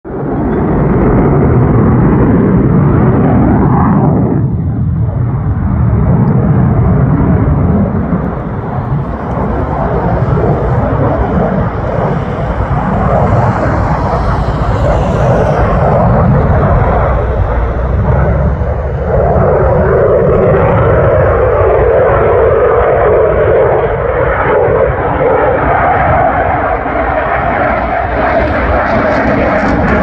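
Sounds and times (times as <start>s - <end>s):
loud jet engine noise: 0.1s - 30.0s.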